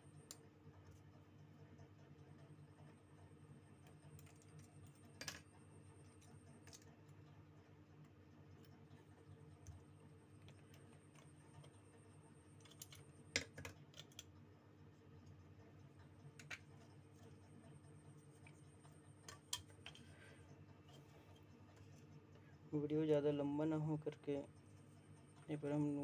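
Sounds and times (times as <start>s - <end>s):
low steady hum: 0.0s - 26.0s
small clicks and taps: 12.6s - 14.4s, 15.8s - 17.3s.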